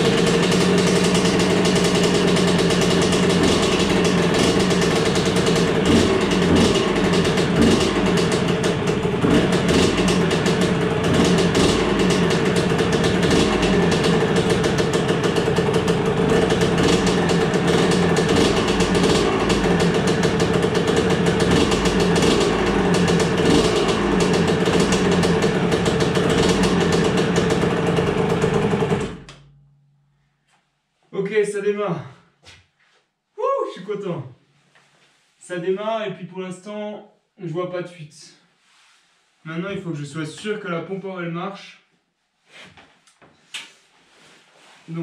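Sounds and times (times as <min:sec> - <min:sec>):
two-stroke engine idling: 0:00.0 - 0:29.6.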